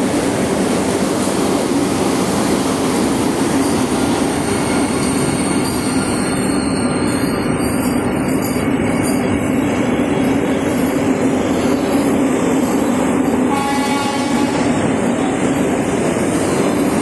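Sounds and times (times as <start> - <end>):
train wheels rumbling on rails: 0.0 - 17.0
train horn: 13.5 - 14.8.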